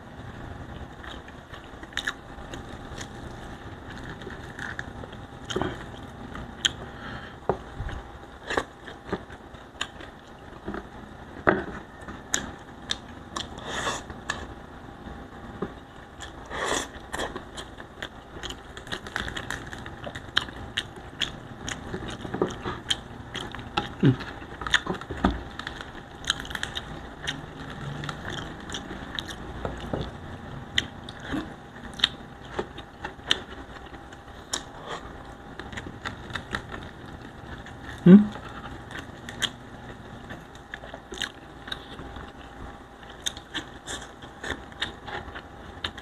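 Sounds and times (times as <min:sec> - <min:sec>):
chewing: 0:00.8 - 0:07.0, 0:15.6 - 0:46.0.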